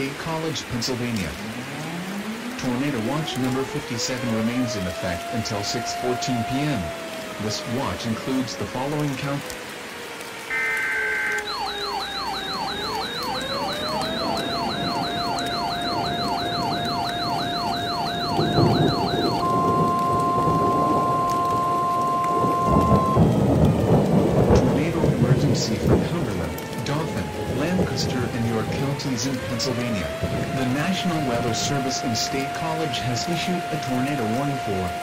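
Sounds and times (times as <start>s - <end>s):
heavy rain: 0.0s - 35.0s
thunder rumbling: 0.0s - 35.0s
fast yelping siren: 1.2s - 35.0s
siren winding up to a wail: 1.2s - 35.0s
steady warning alarm tone: 1.7s - 35.0s.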